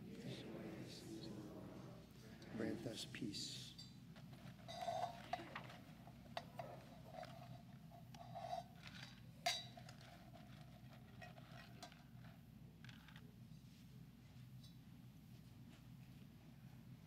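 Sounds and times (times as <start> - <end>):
metal vessels clinking: 3.7 - 12.4.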